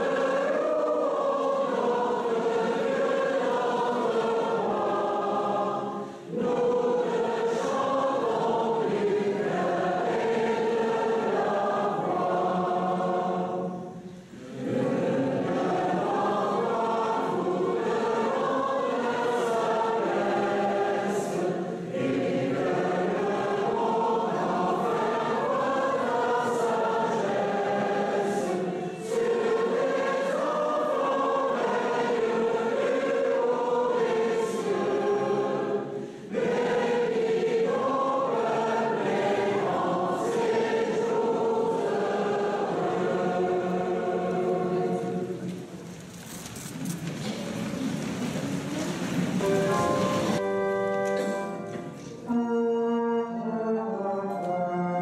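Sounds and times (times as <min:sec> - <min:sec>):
choir singing in church: 0:00.0 - 0:55.0
singers breathing: 0:05.9 - 0:06.3, 0:14.0 - 0:14.5, 0:35.9 - 0:36.4.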